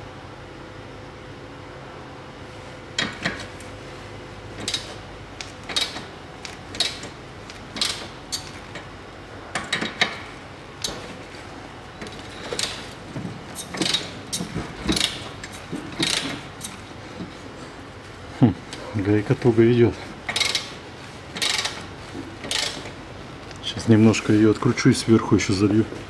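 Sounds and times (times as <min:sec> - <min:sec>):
ratchet wrench clicking: 0:04.6 - 0:06.0, 0:07.8 - 0:08.5, 0:13.6 - 0:16.8, 0:20.3 - 0:20.7, 0:21.4 - 0:21.8, 0:22.4 - 0:22.9.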